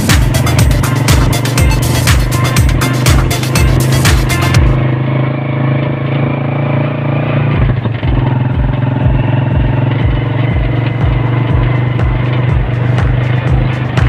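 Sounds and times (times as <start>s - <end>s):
motorcycle engine running: 0.0s - 14.0s
low thumping: 7.6s - 14.0s.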